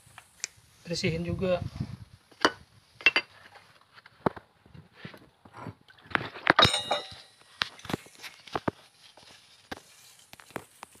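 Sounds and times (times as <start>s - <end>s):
brief metallic ring: 6.6s - 7.4s
small metal parts clinking: 6.6s - 7.4s.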